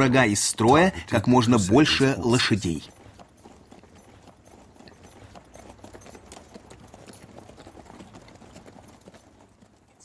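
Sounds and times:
horse hooves clip-clopping: 0.0s - 10.0s.

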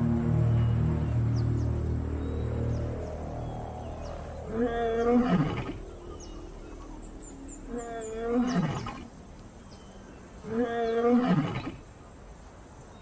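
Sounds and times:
lion roaring: 4.4s - 9.2s.

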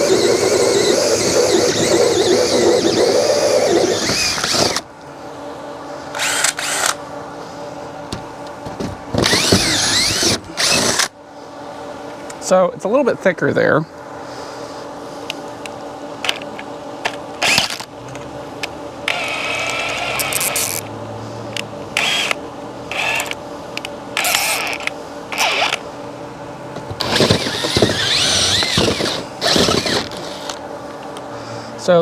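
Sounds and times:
cordless drill cutting siding: 0.0s - 4.9s, 6.2s - 7.0s, 9.2s - 11.1s, 17.4s - 17.8s, 19.0s - 20.8s, 22.0s - 23.4s, 24.2s - 25.8s, 27.0s - 30.6s
drill bit clicks and knocks: 27.0s - 30.6s.

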